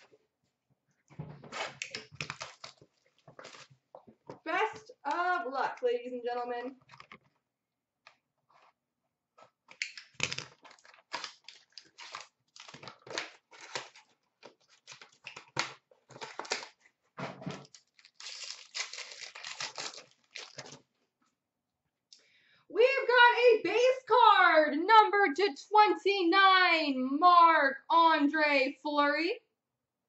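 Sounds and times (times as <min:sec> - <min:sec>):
foil wrapper crinkling and ripping: 0:01.6 - 0:03.8, 0:09.7 - 0:21.0.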